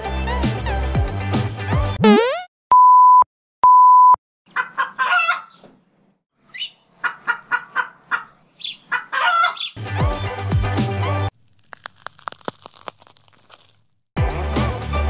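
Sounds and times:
chicken clucking: 4.5s - 5.7s, 6.6s - 9.8s.

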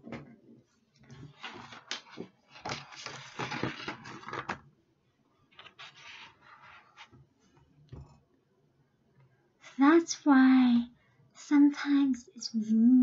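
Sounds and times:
objects crinkling and scraping: 0.9s - 4.7s, 5.5s - 8.2s
faint scratches: 5.5s - 7.6s.

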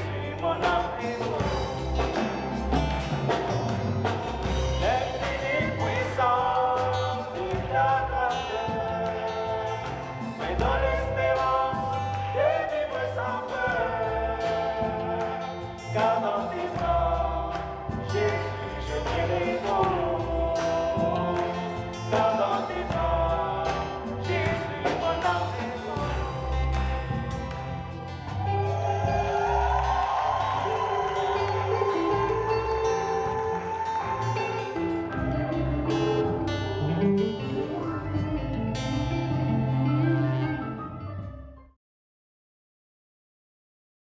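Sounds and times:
man singing: 0.0s - 2.8s, 4.4s - 39.3s
drums: 0.0s - 41.6s
low bass notes: 0.0s - 41.6s
electric guitar: 0.0s - 41.7s
woman singing: 28.7s - 34.9s.

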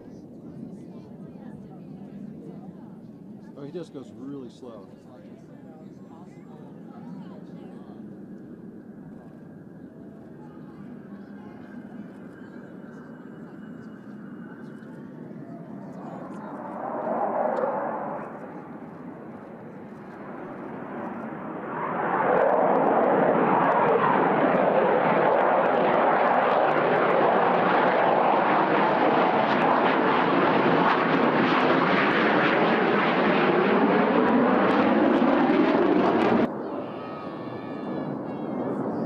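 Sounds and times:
jet engine rush: 11.8s - 39.0s.

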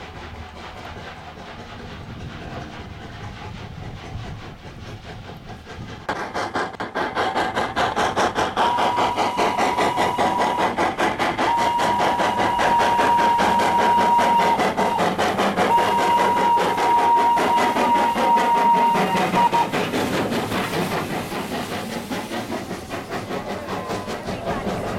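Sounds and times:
steam locomotive exhaust chuffs: 0.0s - 24.9s
steam whistle: 8.6s - 10.7s, 11.4s - 19.7s.

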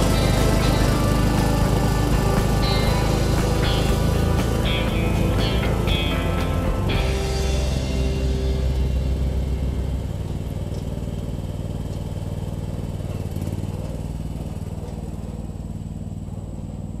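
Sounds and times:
garden tractor engine running: 0.0s - 17.0s.

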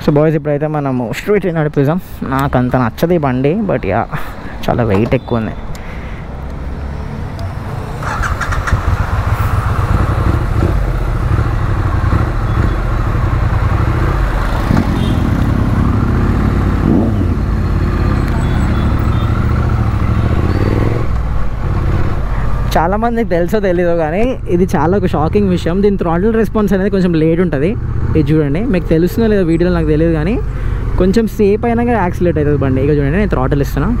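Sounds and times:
motorcycle engine accelerating: 6.8s - 22.2s.

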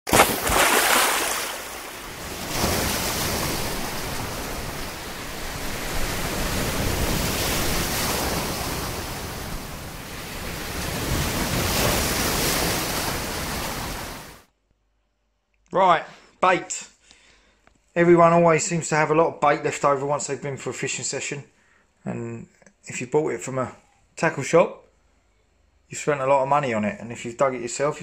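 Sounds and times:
waves breaking on shore: 0.1s - 14.5s.

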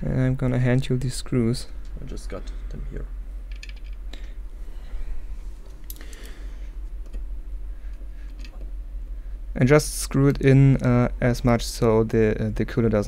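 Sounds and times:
steady low hum: 0.0s - 13.0s
small metal screws clicking: 3.5s - 4.0s.

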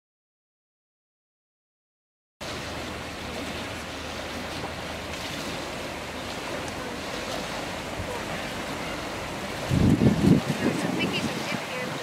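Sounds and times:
choppy water and waves: 2.4s - 12.0s.

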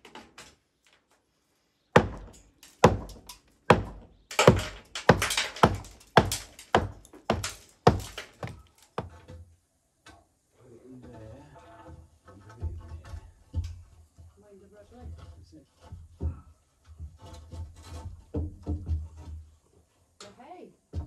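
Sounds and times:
hammer striking cement render: 2.0s - 9.2s.

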